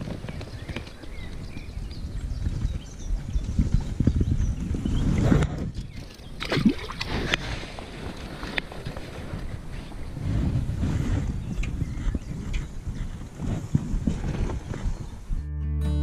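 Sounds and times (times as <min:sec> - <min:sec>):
microphone handling rumble: 0:00.0 - 0:06.4, 0:07.0 - 0:15.5
fish splashing into water: 0:06.4 - 0:07.4.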